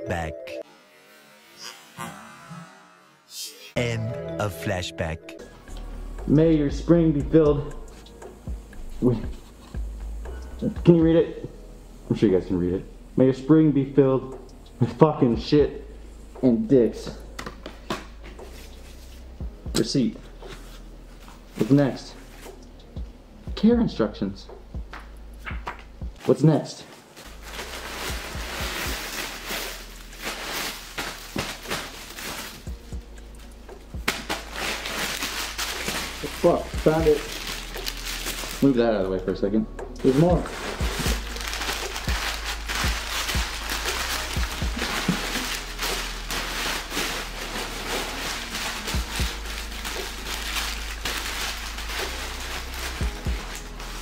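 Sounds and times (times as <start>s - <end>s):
dull low thumps: 19.3s - 19.8s, 22.9s - 26.2s
packing material rustling: 26.2s - 32.7s, 34.0s - 38.8s, 40.0s - 54.0s.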